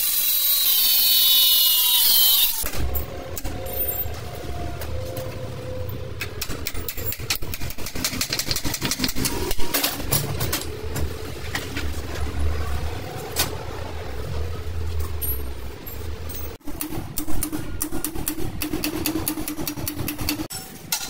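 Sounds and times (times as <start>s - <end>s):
sharp clicks and knocks: 16.6s - 21.0s.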